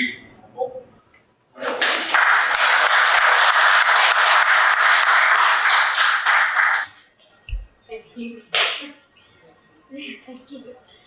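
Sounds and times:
audience applauding: 1.6 - 6.9.

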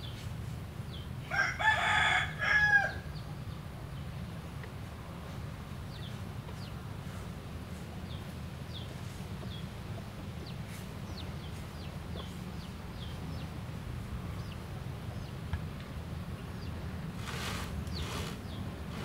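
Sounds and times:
small bird chirping: 16.5 - 19.0.

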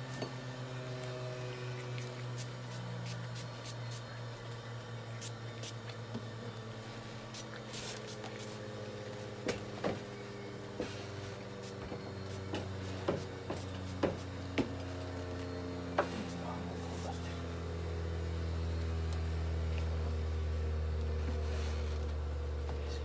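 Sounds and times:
low electric hum: 0.0 - 23.0
spray bottle spritzing: 2.0 - 4.1, 7.3 - 8.6.

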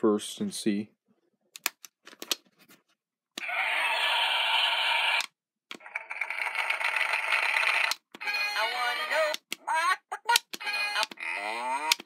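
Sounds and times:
tinny toy sound effects: 5.8 - 12.0
toy button clicks: 10.4 - 11.2, 11.8 - 12.0.

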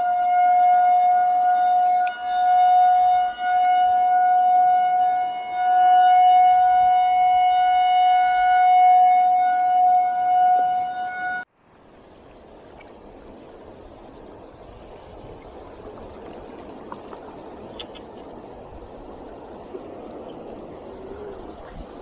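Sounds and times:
steady siren-like tone: 0.0 - 11.5.

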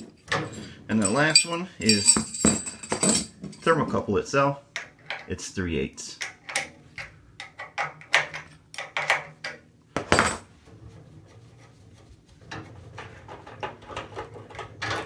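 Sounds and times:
wrenches clinking and jangling: 0.0 - 3.8.

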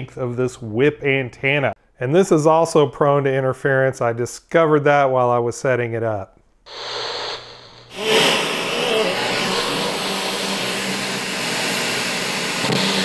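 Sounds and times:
faint hum: 6.7 - 13.0
radio static hiss: 6.7 - 13.0.

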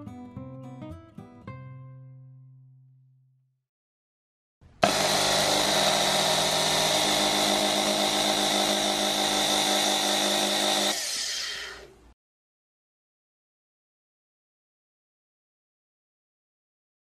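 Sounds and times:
electric motor whining: 4.8 - 11.9.

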